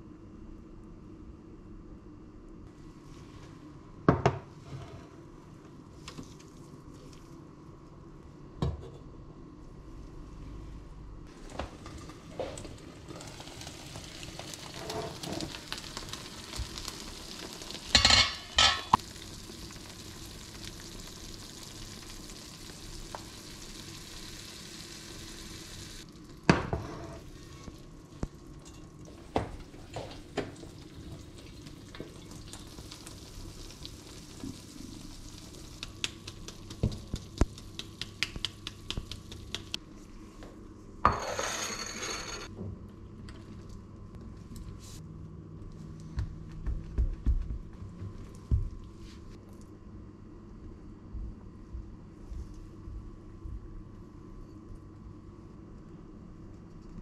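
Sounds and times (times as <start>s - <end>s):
food sizzling in a frying pan: 11.3s - 27.8s, 28.7s - 39.6s
metal pan and lid clanking: 18.0s - 19.0s.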